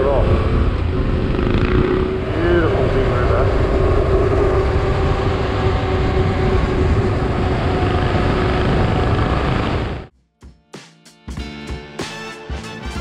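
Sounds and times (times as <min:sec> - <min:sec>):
motorcycle engine drone: 0:00.0 - 0:10.1
wind and road noise: 0:00.0 - 0:10.1.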